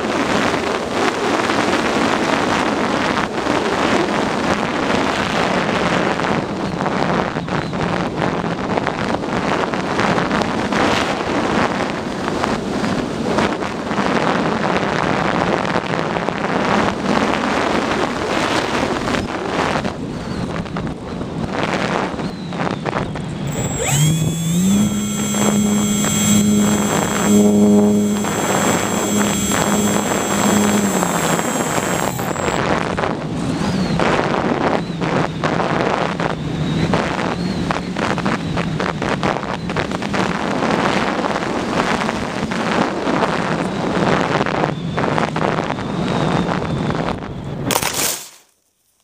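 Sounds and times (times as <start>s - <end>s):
electric motor humming: 23.5s - 32.6s.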